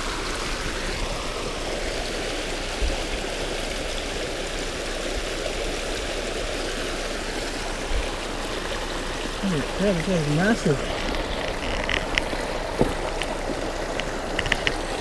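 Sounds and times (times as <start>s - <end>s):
creek water rushing over rocks: 0.0s - 15.0s
low thump: 12.8s - 13.1s.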